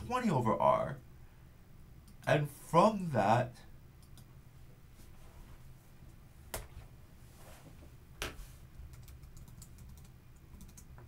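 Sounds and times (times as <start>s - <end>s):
computer keyboard typing: 8.9s - 11.0s.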